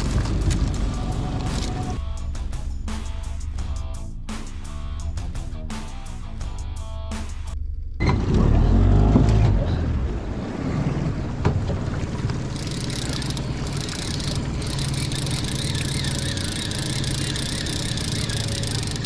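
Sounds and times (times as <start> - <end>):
outboard motor running: 0.0 - 2.0, 9.1 - 19.0
fishing reel ticking: 12.5 - 19.0.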